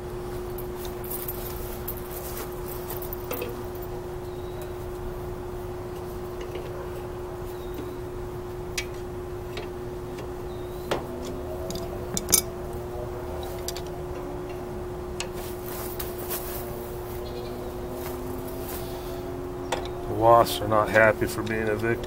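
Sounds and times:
steady low hum: 0.0 - 22.0
metal tools clicking and clinking: 2.8 - 3.9, 11.2 - 12.6, 13.4 - 13.9.

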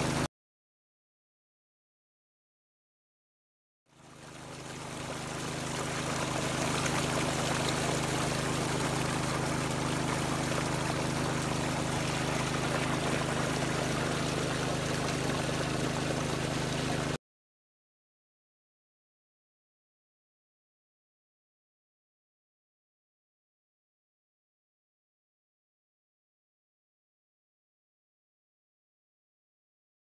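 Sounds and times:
water trickling over weir: 0.0 - 0.3, 3.9 - 17.2.

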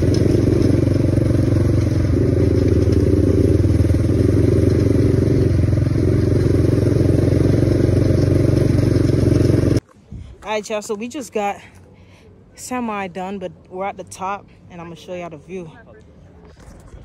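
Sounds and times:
quad bike engine running: 0.0 - 9.8.

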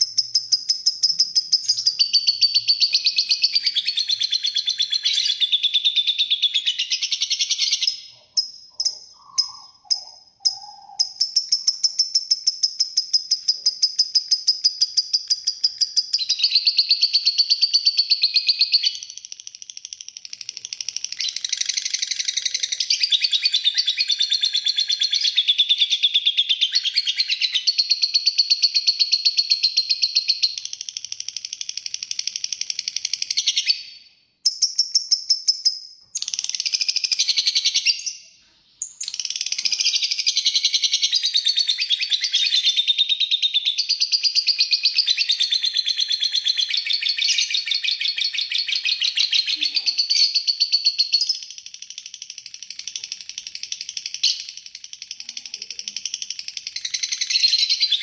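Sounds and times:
bird chattering trill: 0.0 - 25.8, 38.8 - 58.0.

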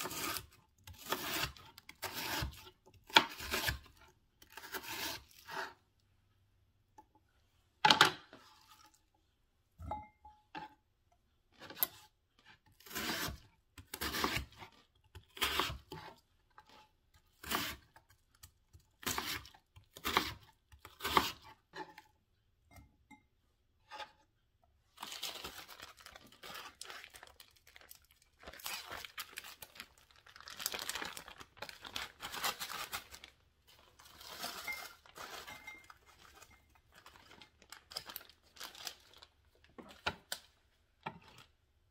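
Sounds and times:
knife chopping on wooden board: 21.0 - 21.4.

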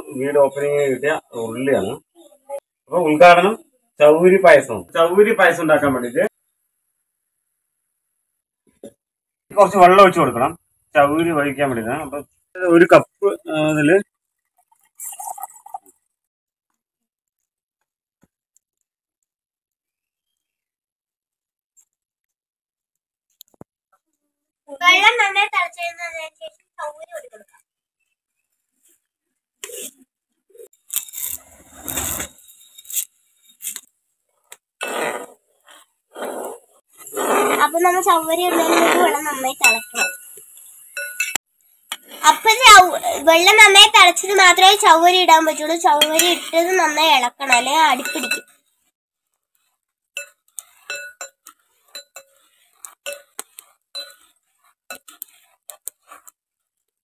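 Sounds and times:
metal ladle clinking on metal pot: 39.7 - 40.3, 41.0 - 41.4, 47.6 - 48.6, 50.2 - 52.4, 53.0 - 53.4, 54.0 - 54.2
metal ladle stirring in pot: 50.2 - 56.3.

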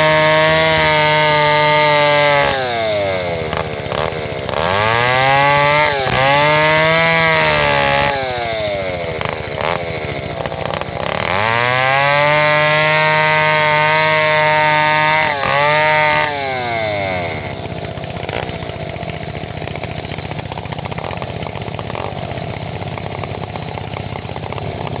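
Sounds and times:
chainsaw cutting through log: 0.0 - 25.0.

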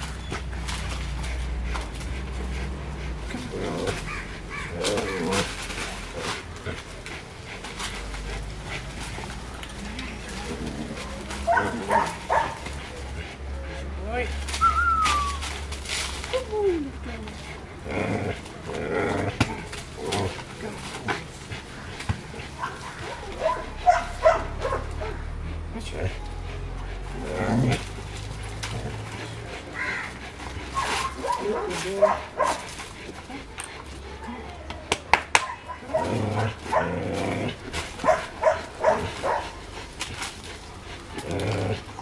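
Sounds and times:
dog barking: 11.4 - 12.6, 22.6 - 25.2, 30.8 - 32.6, 38.0 - 39.5
dog whining and yipping: 14.6 - 15.6.

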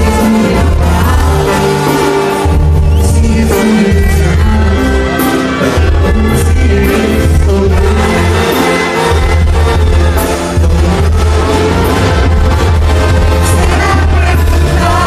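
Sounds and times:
person singing: 0.0 - 9.1, 13.4 - 15.0
brass section: 0.0 - 15.0
congas and drums: 0.0 - 15.0.

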